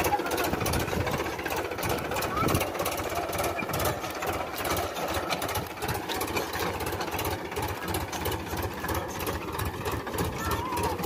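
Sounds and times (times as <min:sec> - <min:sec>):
cultivator clattering through soil: 0:00.0 - 0:11.0
tractor diesel engine running: 0:00.0 - 0:11.0.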